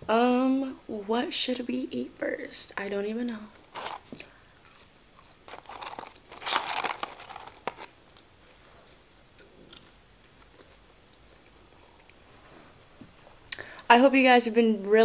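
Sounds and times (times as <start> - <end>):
person chewing fries: 3.8 - 12.2.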